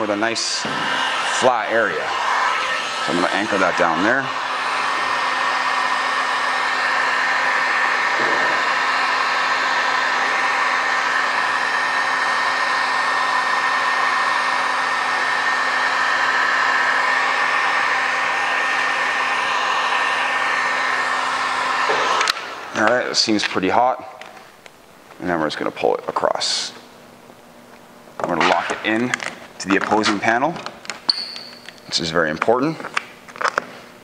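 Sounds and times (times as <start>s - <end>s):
heat gun air rushing: 0.0s - 24.6s, 28.4s - 29.2s
fan motor whine: 0.0s - 34.0s.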